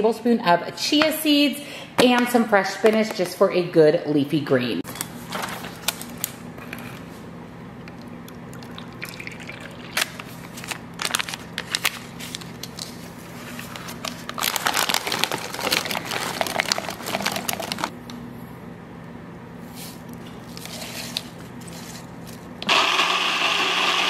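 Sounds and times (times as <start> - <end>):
pouring milk and powder: 7.9 - 10.4, 14.3 - 17.9
plastic bag crinkling: 9.0 - 17.9
frozen berries clattering into cup: 14.0 - 17.9.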